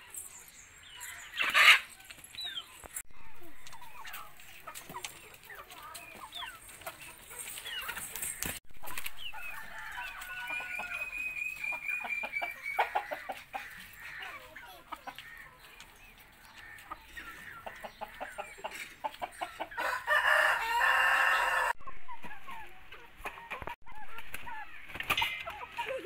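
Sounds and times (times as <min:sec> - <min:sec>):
chickens clucking: 0:00.0 - 0:26.0
rooster crowing: 0:19.8 - 0:21.8.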